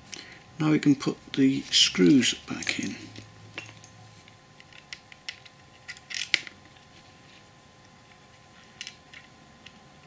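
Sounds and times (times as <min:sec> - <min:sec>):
small screws clicking and scraping: 0:04.6 - 0:06.5.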